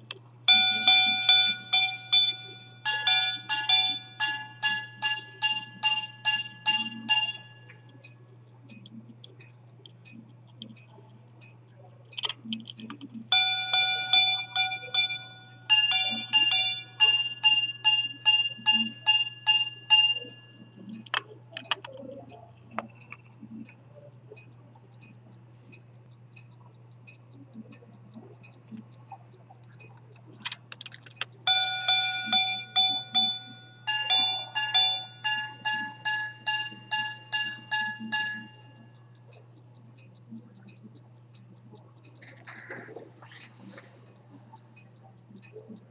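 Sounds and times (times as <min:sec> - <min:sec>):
pocket watch striking gongs: 0:00.0 - 0:07.8, 0:13.3 - 0:22.0, 0:31.5 - 0:38.8
faint watch ticking: 0:00.0 - 0:45.9.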